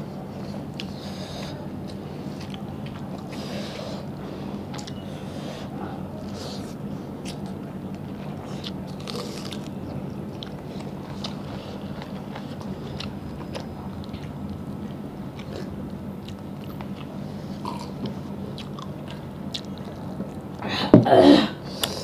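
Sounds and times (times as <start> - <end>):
steady low hum: 0.0 - 22.0
wet chewing and mouth clicks: 7.2 - 20.6.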